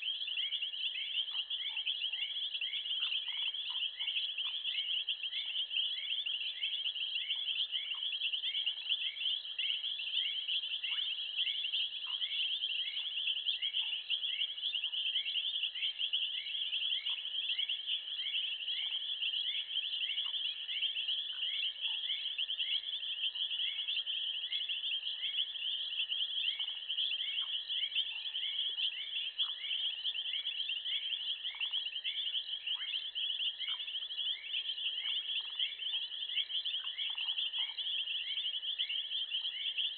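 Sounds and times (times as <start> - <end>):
night insects chorus: 0.0 - 39.9.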